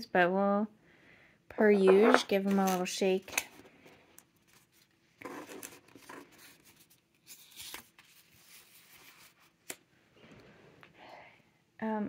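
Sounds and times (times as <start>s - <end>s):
paper cards rustling and scraping: 1.6s - 9.8s
card tapped on table: 1.9s - 2.3s.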